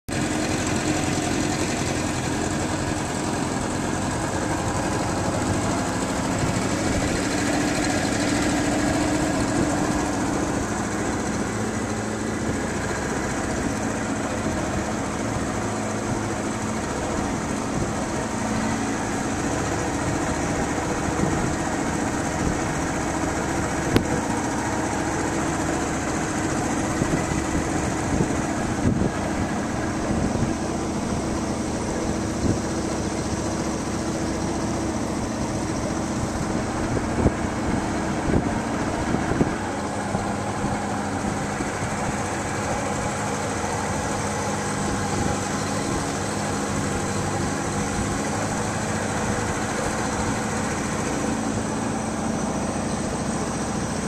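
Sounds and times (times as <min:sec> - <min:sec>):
boat engine running: 0:00.1 - 0:54.0.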